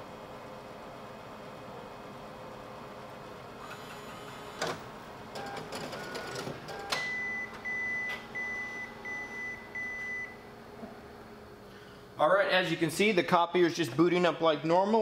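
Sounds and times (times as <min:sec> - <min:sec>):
short motor tones: 0:03.6 - 0:04.8
copier mechanical clicks: 0:04.6 - 0:08.2.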